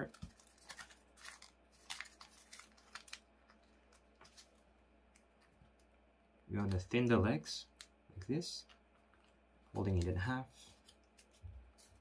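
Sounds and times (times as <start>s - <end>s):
paper crinkling and rustling: 0.0s - 4.7s, 9.8s - 12.0s.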